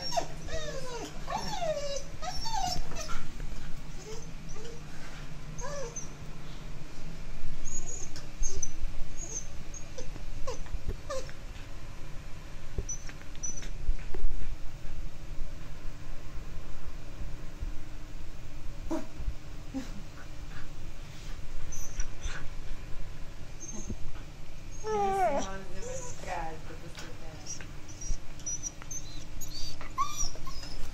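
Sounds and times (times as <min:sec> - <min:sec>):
dog whimpering: 0:00.0 - 0:03.2, 0:03.9 - 0:04.8, 0:05.6 - 0:06.2, 0:07.6 - 0:11.3, 0:23.6 - 0:24.0, 0:24.7 - 0:26.4, 0:27.4 - 0:30.9.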